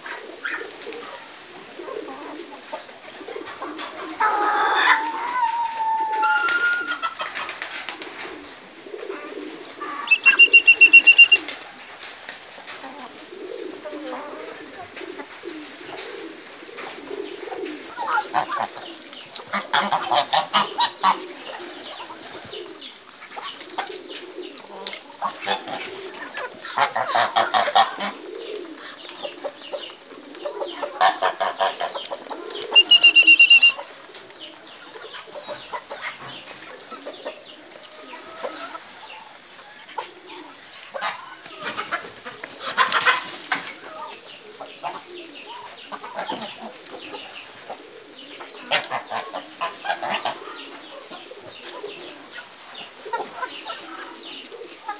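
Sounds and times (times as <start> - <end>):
chickens clucking: 0.0 - 54.9
low chatter of poultry: 0.0 - 54.9
high-pitched whistle-like tone: 10.1 - 11.4, 32.8 - 33.8.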